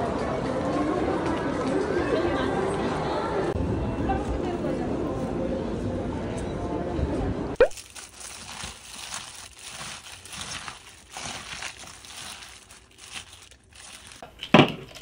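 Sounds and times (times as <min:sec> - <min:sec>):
plastic glove crinkling: 0:07.6 - 0:15.0.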